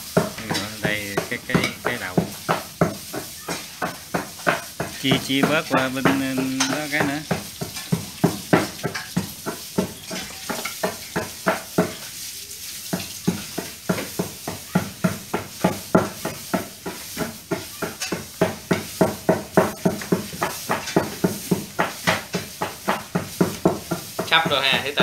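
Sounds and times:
knife chopping meat: 0:00.0 - 0:12.1, 0:12.8 - 0:25.0.

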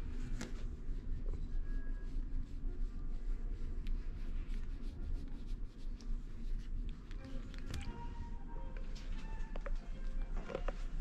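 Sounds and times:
steady low rumble: 0:00.0 - 0:11.0
hand scratching cat fur: 0:00.1 - 0:07.8.

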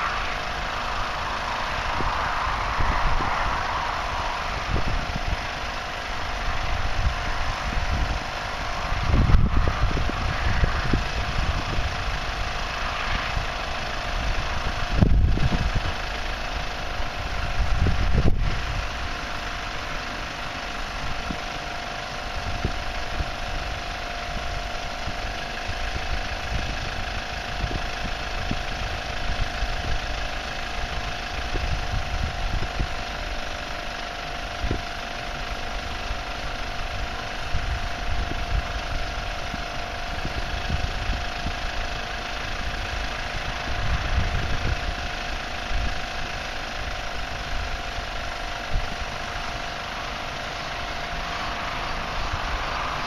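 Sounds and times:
wind buffeting microphone: 0:00.0 - 0:19.2, 0:36.4 - 0:46.5
air compressors droning: 0:00.0 - 0:33.5, 0:34.1 - 0:53.0.

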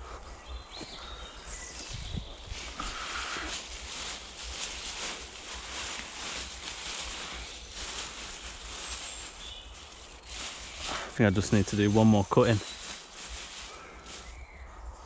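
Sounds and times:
leafy branches rustling: 0:00.0 - 0:14.8
wind rumble on microphone: 0:00.2 - 0:09.7.

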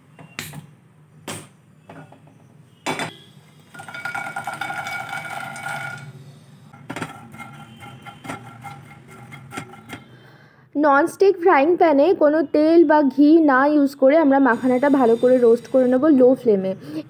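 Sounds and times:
sharp knocks: 0:01.3 - 0:01.6
nuts poured into frying pan: 0:03.7 - 0:06.1.

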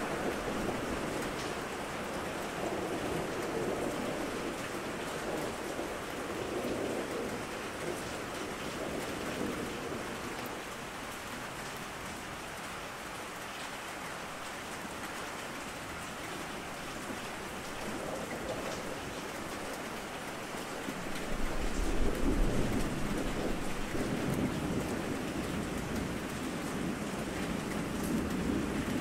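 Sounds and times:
thunder rumble: 0:00.0 - 0:10.6, 0:20.9 - 0:29.0
heavy rain falling: 0:00.0 - 0:29.0.

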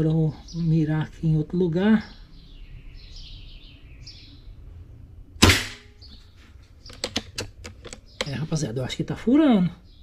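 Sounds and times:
pellet striking helmet: 0:05.4 - 0:05.9
air rifle shot crack: 0:05.4 - 0:06.0.

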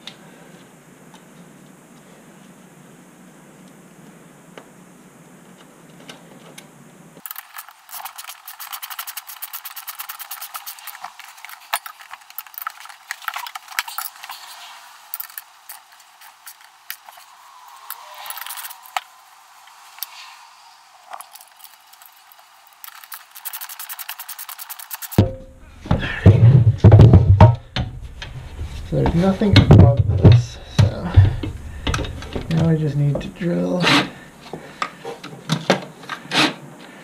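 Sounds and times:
ratchet wrench clicking: 0:07.2 - 0:11.0, 0:22.8 - 0:25.2.

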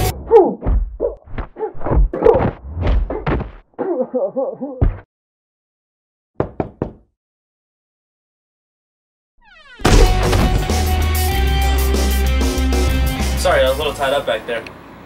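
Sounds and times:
thumps and knocks: 0:06.4 - 0:07.0.

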